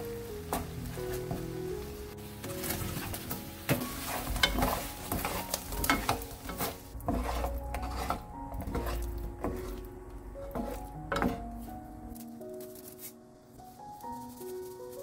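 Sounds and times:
sauce bubbling and sizzling: 0.0s - 11.8s.

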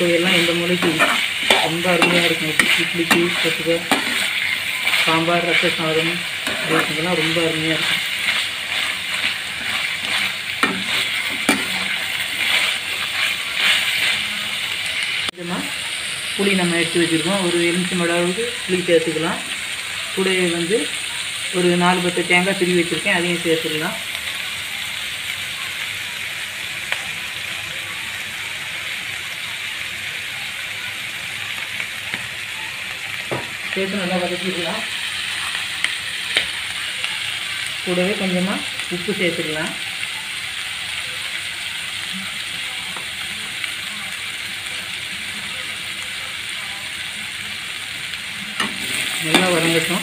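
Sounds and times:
metal spatula stirring: 0.0s - 14.6s
food sizzling in oil: 0.0s - 50.0s
spatula knocking on pan: 10.6s - 11.9s.

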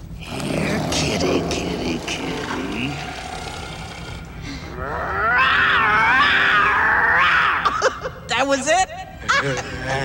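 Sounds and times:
loud wavering roar: 0.2s - 7.6s.

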